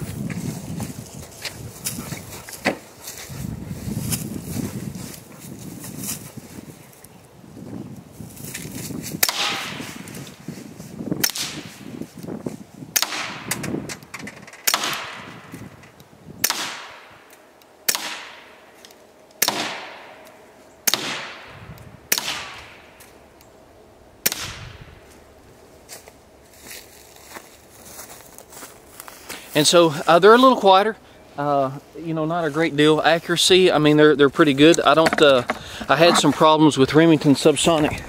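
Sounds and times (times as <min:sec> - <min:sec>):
suppressed pistol shots: 0:19.4 - 0:20.2, 0:22.1 - 0:22.8.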